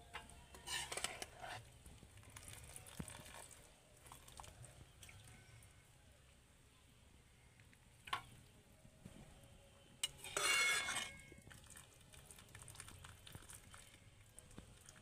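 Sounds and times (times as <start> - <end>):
metal spoon clinking on plate: 10.0 - 11.3.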